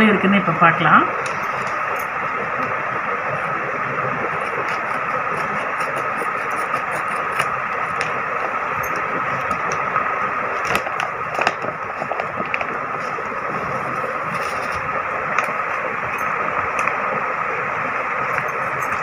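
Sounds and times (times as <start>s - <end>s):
machine hum with faint whine: 0.0s - 19.0s
scissors cutting paper packet: 4.4s - 8.2s
paper crinkling: 10.5s - 15.6s.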